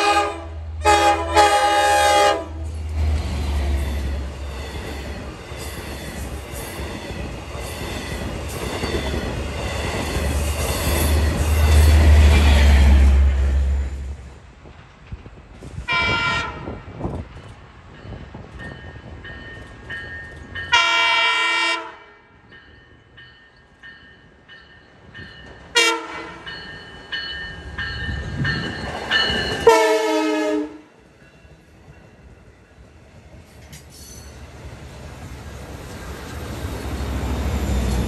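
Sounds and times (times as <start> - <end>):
train horn blasts: 0.0 - 2.8, 15.9 - 16.8, 20.7 - 22.4, 25.7 - 26.5, 29.6 - 31.0
train rumble: 0.0 - 38.0.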